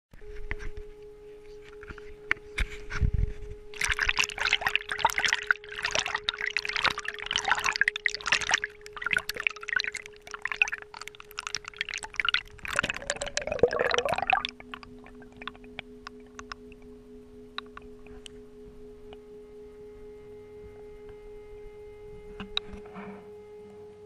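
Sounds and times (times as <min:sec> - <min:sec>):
faint steady hum: 0:00.2 - 0:24.0
water splashing and sloshing: 0:03.7 - 0:16.9.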